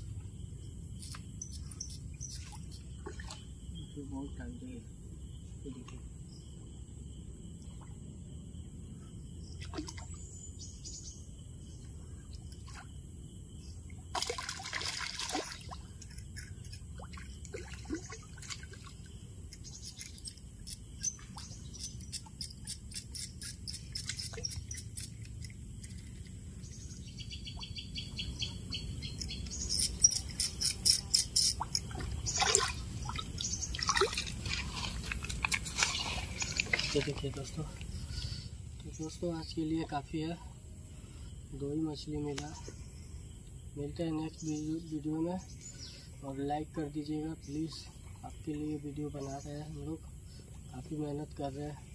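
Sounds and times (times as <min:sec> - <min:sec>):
water splashing: 0:14.1 - 0:19.2, 0:31.5 - 0:37.4.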